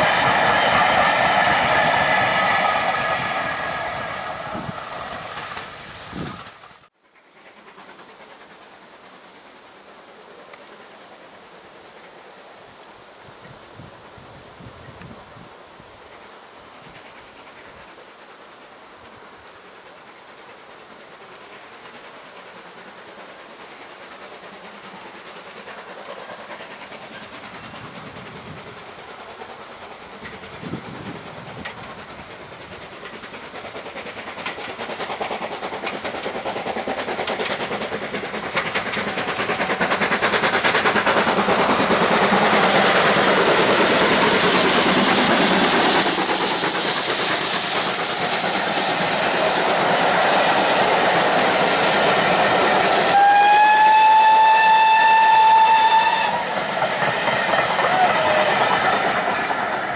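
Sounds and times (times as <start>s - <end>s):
steam hiss: 0.0s - 59.9s
steam locomotive passing: 0.0s - 59.9s
wheels clacking over rail joints: 20.9s - 59.9s.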